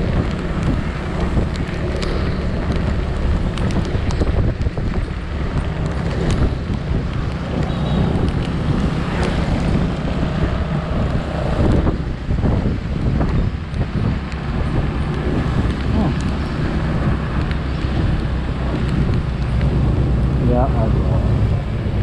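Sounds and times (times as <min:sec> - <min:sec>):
scooter engine and road rumble: 0:00.0 - 0:22.0
wind buffeting microphone: 0:00.0 - 0:22.0
light ticks: 0:00.2 - 0:08.6, 0:17.4 - 0:19.7.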